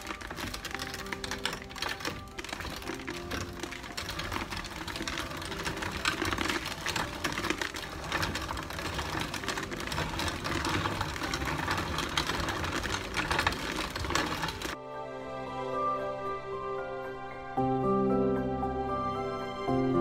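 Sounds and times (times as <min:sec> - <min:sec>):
corn grinder clattering: 0:00.0 - 0:14.8.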